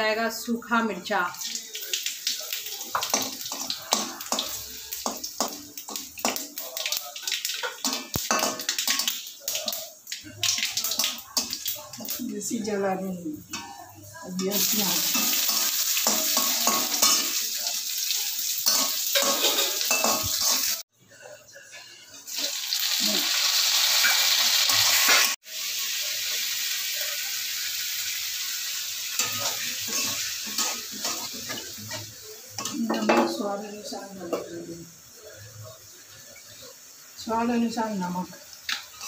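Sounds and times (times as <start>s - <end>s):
oil sizzling in a pan: 0.0s - 20.9s, 21.7s - 39.0s
metal spatula scraping a pan: 18.6s - 20.8s.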